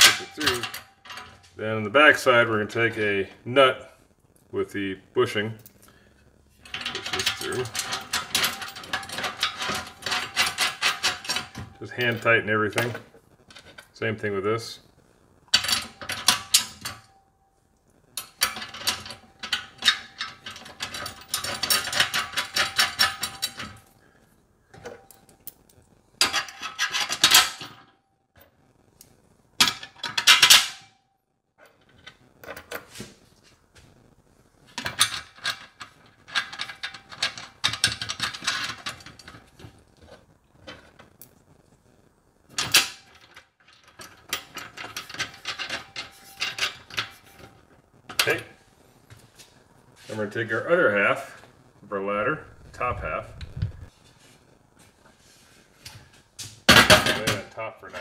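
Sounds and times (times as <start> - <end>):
metallic clicking and rattling: 0.0 - 1.5, 6.6 - 13.9, 15.5 - 17.1, 18.2 - 23.9, 34.8 - 39.8, 42.5 - 48.4.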